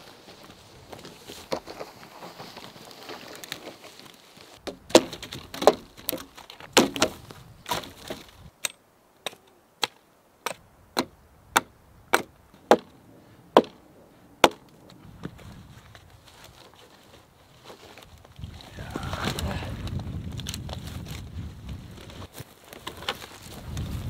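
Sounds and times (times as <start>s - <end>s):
wood chips rattling: 1.5s - 8.4s
hatchet chopping log: 4.6s - 12.9s, 13.6s - 13.8s, 14.4s - 14.6s.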